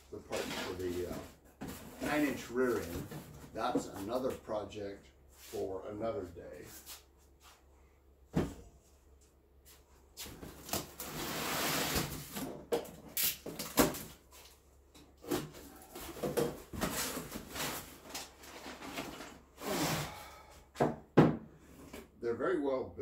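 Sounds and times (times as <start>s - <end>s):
cardboard scraping: 10.4s - 12.5s.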